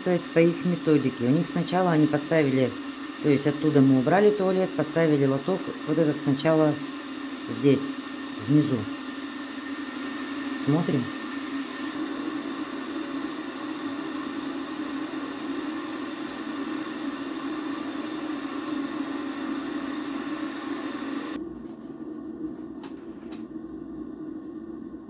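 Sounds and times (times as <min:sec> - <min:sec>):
mechanical hum with hiss: 0:00.0 - 0:25.0.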